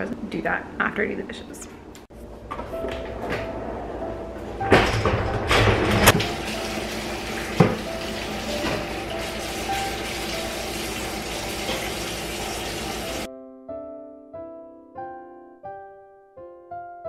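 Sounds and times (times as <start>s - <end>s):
faucet running: 6.1s - 13.3s.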